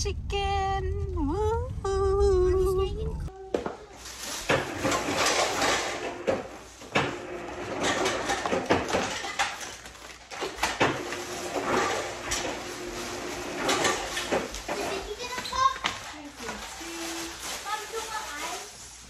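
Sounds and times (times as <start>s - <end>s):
plastic bag crinkling: 3.7s - 5.8s, 9.0s - 11.6s, 12.6s - 19.0s.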